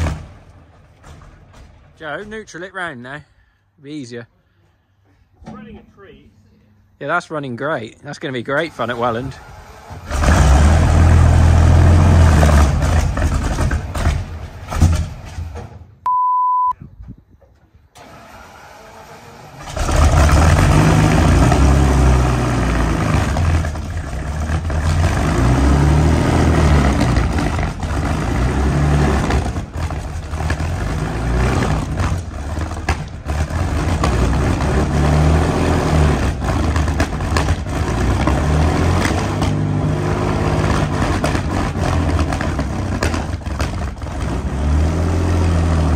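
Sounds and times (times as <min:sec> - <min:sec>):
heavy tracked vehicle engine: 0:07.0 - 0:15.8, 0:18.0 - 0:45.9
electronic beep: 0:16.1 - 0:16.8.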